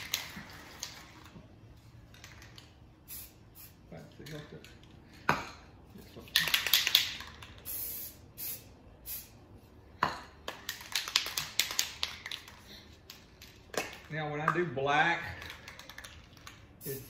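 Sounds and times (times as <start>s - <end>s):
spray can rattling when shaken: 0.0s - 4.6s, 6.1s - 9.4s, 10.5s - 14.2s, 15.3s - 17.0s
spray paint hissing: 3.0s - 3.9s, 6.4s - 9.6s, 16.4s - 17.0s.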